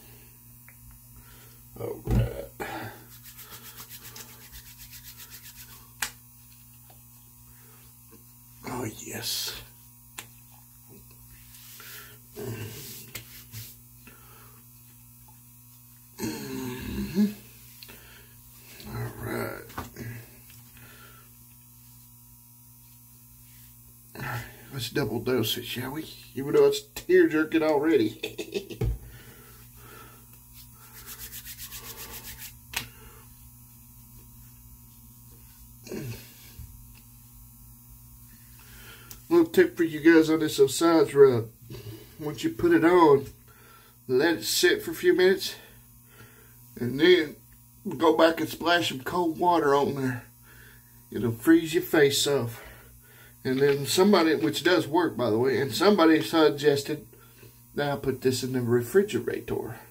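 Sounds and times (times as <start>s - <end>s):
hands patting skin: 3.0s - 7.0s, 10.1s - 11.8s, 12.8s - 13.8s, 30.3s - 33.0s
man exhaling and grunting: 12.4s - 12.9s, 16.2s - 17.4s, 35.8s - 36.4s.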